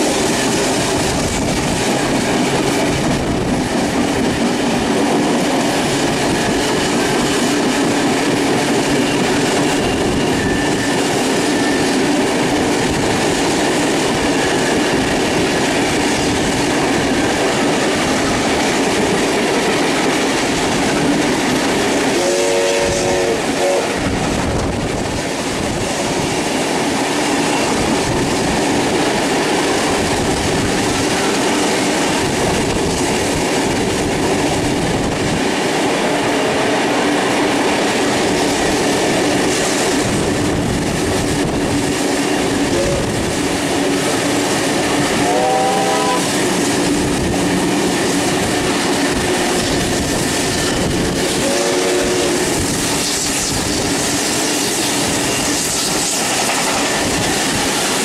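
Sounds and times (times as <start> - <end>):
train wheel clatter: 0.0 - 58.0
steam whistle blast: 22.1 - 24.0, 42.7 - 43.2, 45.2 - 46.3, 51.4 - 52.4.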